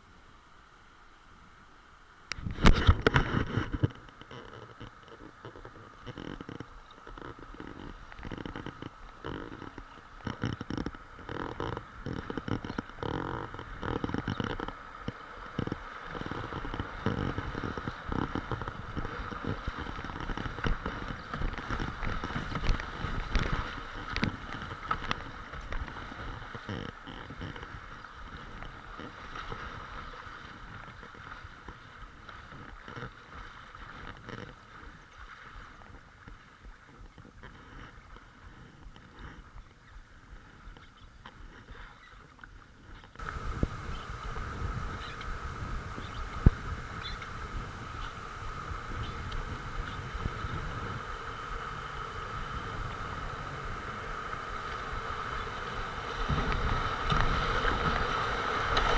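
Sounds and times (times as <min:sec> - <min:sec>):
rushing water around hull: 0:00.0 - 0:58.9
paddle splashes and knocks: 0:02.4 - 0:37.4.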